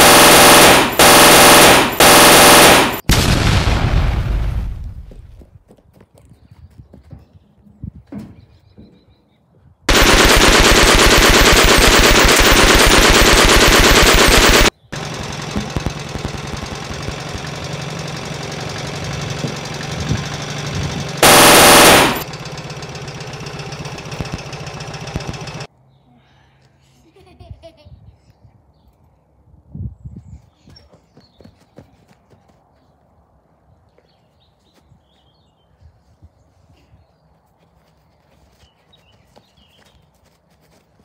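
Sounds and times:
steady noise: 0:00.0 - 0:03.1, 0:09.9 - 0:17.2, 0:21.2 - 0:22.3
machine-gun fire: 0:00.0 - 0:04.6, 0:09.9 - 0:17.4, 0:21.2 - 0:22.3, 0:24.2 - 0:25.7.

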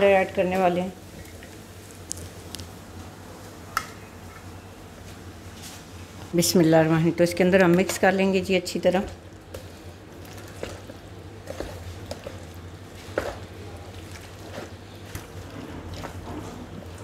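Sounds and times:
low steady hum: 0:00.0 - 0:17.0
spoon squelching through batter: 0:09.3 - 0:17.0.

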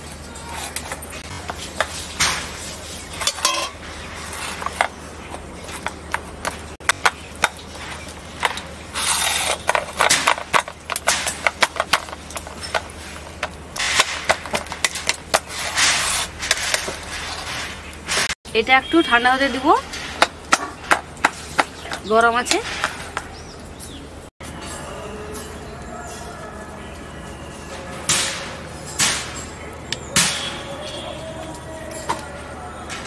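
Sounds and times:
metal spatula scraping steel plate: 0:00.4 - 0:05.0, 0:08.5 - 0:10.3, 0:14.9 - 0:18.4.

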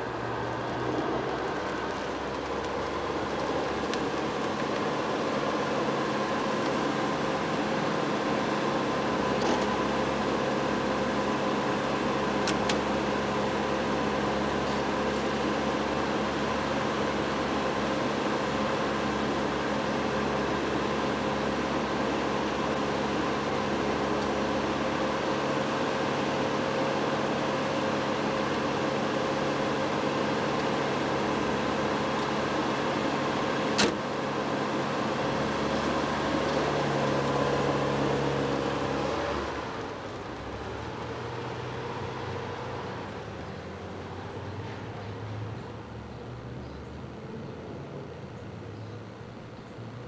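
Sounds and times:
car engine idling: 0:00.0 - 0:50.0
car door shutting: 0:33.8 - 0:34.0.

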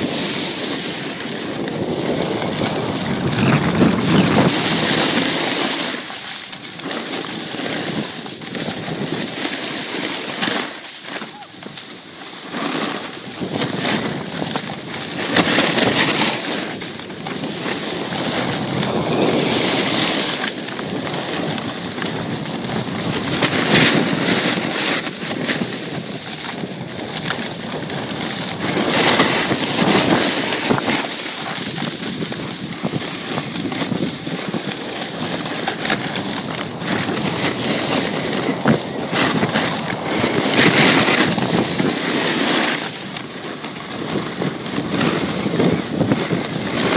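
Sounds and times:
skis scraping on snow: 0:00.0 - 0:46.9
wind rushing over microphone: 0:00.0 - 0:46.9.

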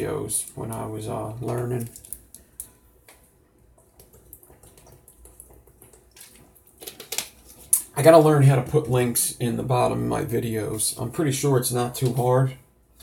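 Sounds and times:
faint clicks and taps: 0:00.4 - 0:07.9.

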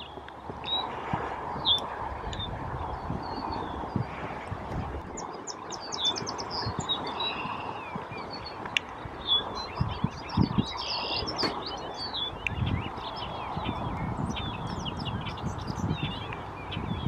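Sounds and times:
bird singing bubbly chirps: 0:05.0 - 0:17.0.

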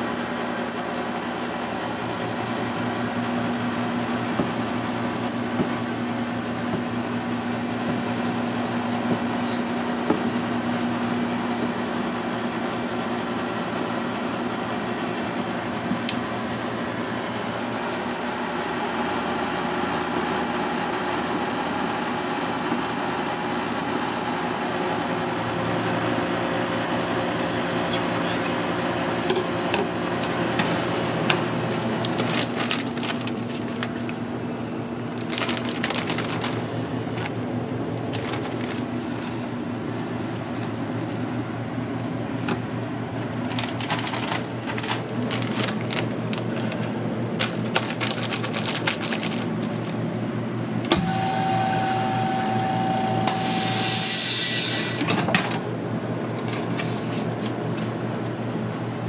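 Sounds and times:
kitchen machinery hum: 0:00.0 - 0:59.0
clicks and rustles of bags: 0:30.6 - 0:34.2, 0:35.1 - 0:37.4, 0:38.1 - 0:39.4, 0:43.4 - 0:50.0
short hiss of air: 0:53.3 - 0:55.1.

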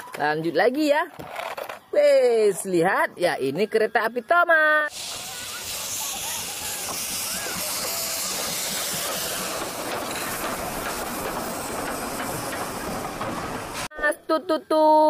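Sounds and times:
steam locomotive venting steam: 0:04.9 - 0:13.9.

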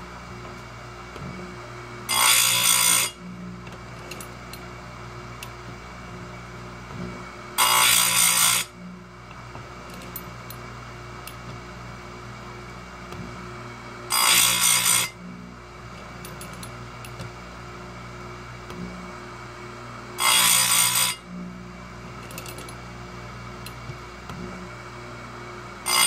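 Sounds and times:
grinder motor humming: 0:00.0 - 0:26.0
grinding wheel grinding chain: 0:22.2 - 0:22.8
small clicks of chain clamping: 0:22.2 - 0:22.8.

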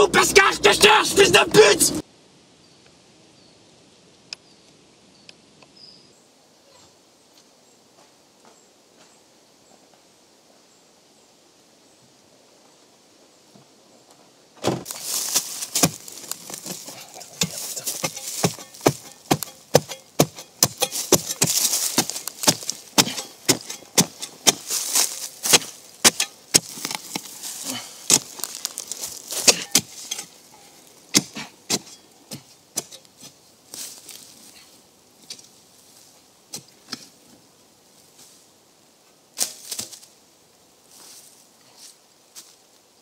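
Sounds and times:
earth and leaves rustling: 0:12.2 - 0:43.0
spade chopping into soil: 0:15.7 - 0:16.8, 0:17.4 - 0:27.3, 0:28.1 - 0:28.5, 0:29.3 - 0:30.4, 0:31.1 - 0:33.4.

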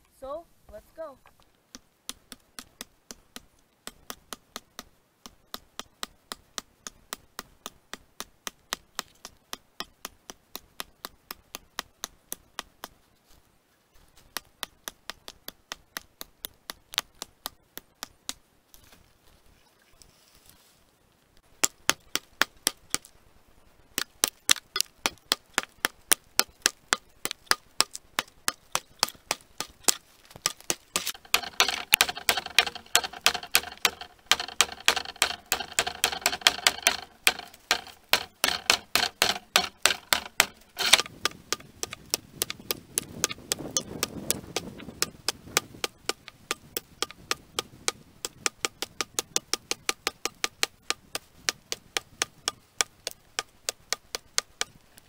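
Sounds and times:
rapid sharp ticking clicks: 0:24.0 - 0:54.8.

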